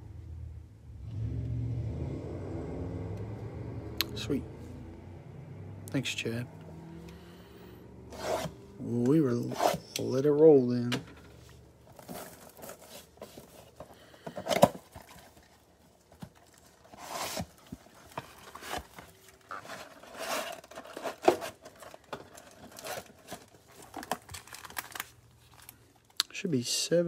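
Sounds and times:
card packs rustling: 8.1 - 26.2
cardboard box tearing: 16.7 - 25.1.

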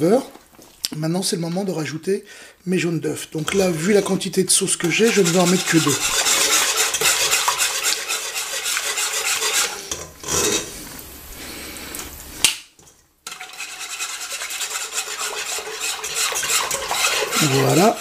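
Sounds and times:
whisk scraping a saucepan: 3.4 - 10.8, 13.3 - 18.0.

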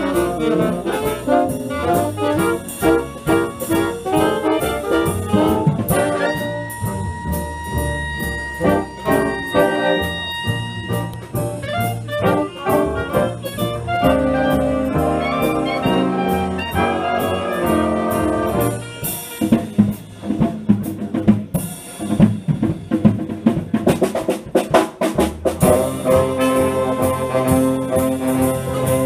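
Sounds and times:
drum kit sharp hits: 0.0 - 15.1
big band playing swing jazz: 0.0 - 29.0.

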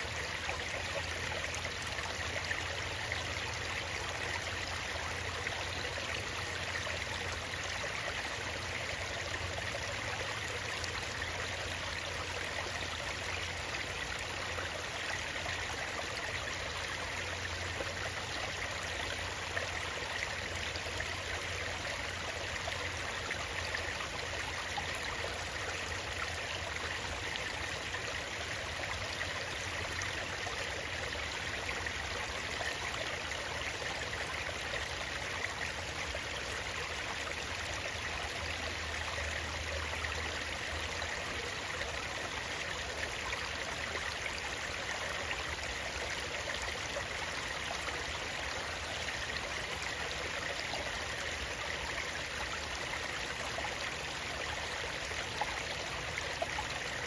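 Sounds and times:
stream water running over rocks: 0.0 - 57.0.

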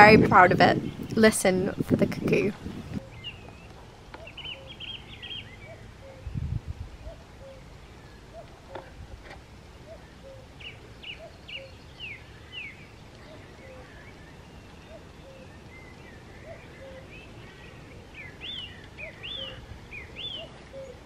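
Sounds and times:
songbird singing: 0.0 - 21.0
cuckoo calling: 2.9 - 6.4, 7.0 - 9.0, 9.7 - 21.0.

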